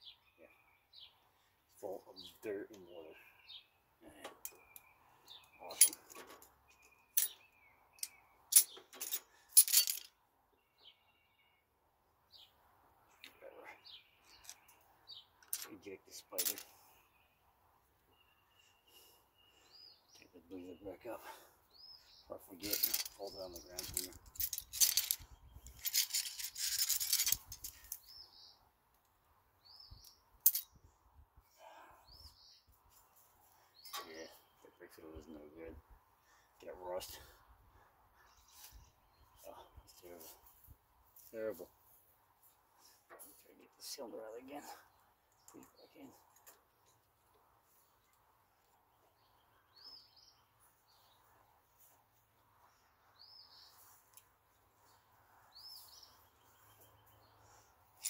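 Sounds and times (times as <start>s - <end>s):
bird chirping: 0.0s - 9.5s, 10.5s - 28.7s, 29.6s - 58.0s
metal tools clinking: 5.7s - 7.4s, 8.0s - 10.1s, 15.4s - 15.7s, 16.3s - 16.7s, 22.6s - 28.1s, 30.4s - 30.8s.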